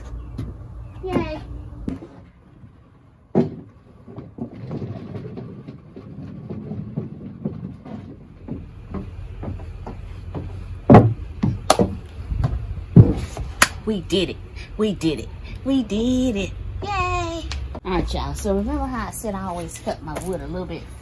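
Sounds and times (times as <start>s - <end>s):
heavy footsteps on deck boards: 0.0s - 13.6s
mower wheels rumbling on boards: 0.0s - 13.6s.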